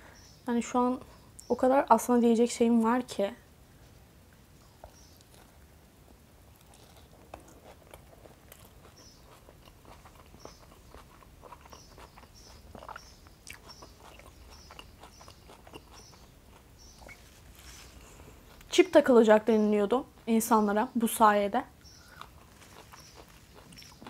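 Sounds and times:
person chewing with wet clicks: 4.8 - 5.6, 6.5 - 17.2, 18.4 - 18.7, 21.8 - 24.0.

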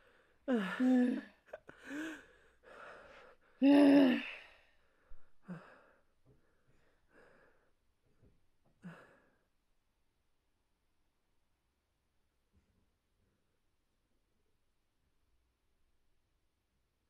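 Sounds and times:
people sighing and gasping: 0.0 - 4.5.

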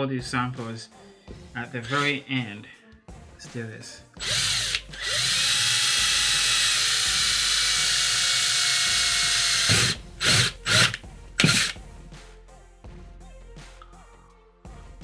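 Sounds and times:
cordless drill boring into metal: 1.8 - 2.2, 4.2 - 11.8
short drill trigger bursts: 1.8 - 2.2, 4.2 - 11.8.

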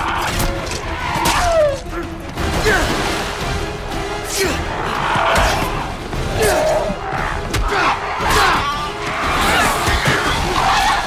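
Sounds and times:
tense film score: 0.0 - 11.0.

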